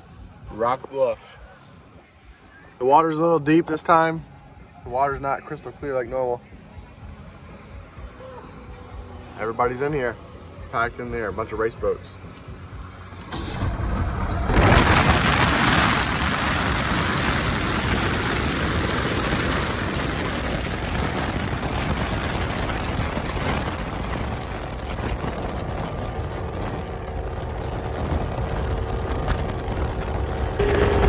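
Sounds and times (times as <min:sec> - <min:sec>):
powerboats running fast: 0:13.3 - 0:31.0.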